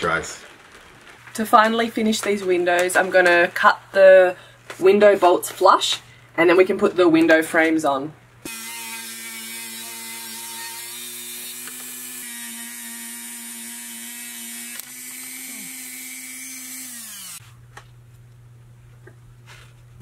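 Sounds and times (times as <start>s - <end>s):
grinder motor spinning down: 8.5s - 17.4s
power grinder cutting metal bolts: 8.5s - 17.4s.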